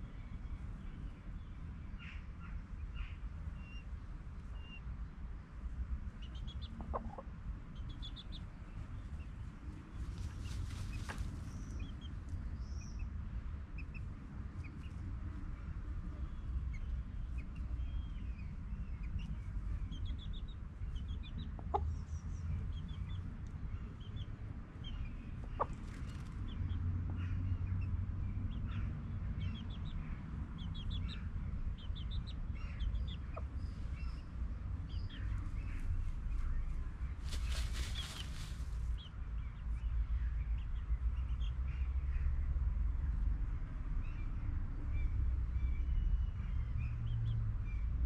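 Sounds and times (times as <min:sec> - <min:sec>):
chickens clucking: 0:06.4 - 0:07.4, 0:21.3 - 0:22.0, 0:25.4 - 0:26.5, 0:37.2 - 0:38.6.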